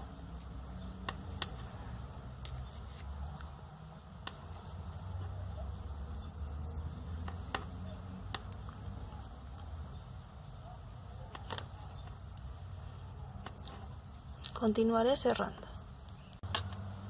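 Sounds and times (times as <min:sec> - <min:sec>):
low steady hum: 0:00.0 - 0:17.0
knitting needles clicking: 0:07.1 - 0:09.0.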